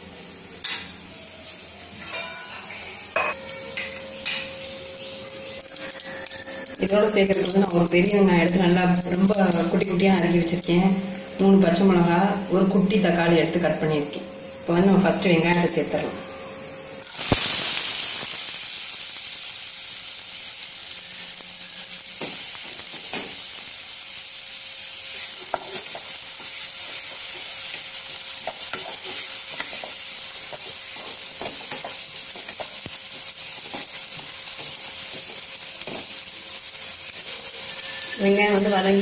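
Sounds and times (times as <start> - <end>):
onion sizzling in hot oil: 3.0 - 15.9, 17.0 - 39.0
spatula scraping a pan: 28.5 - 32.6.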